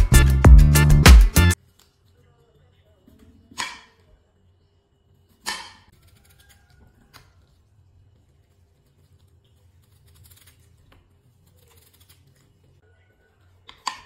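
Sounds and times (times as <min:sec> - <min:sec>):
knife chopping on stone countertop: 0:13.6 - 0:14.0.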